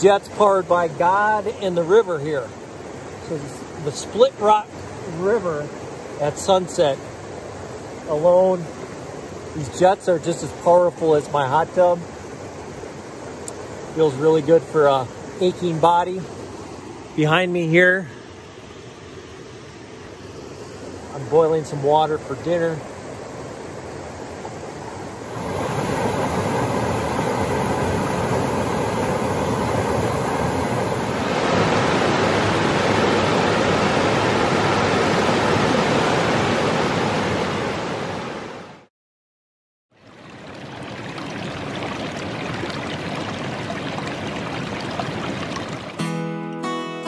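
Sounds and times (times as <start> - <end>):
river rushing over rapids: 0.0 - 38.7
acoustic guitar: 46.0 - 47.0.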